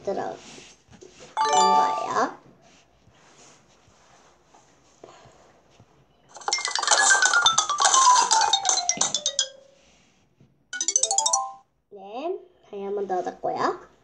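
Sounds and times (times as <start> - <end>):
rapid clatter of clicks: 6.4 - 9.6.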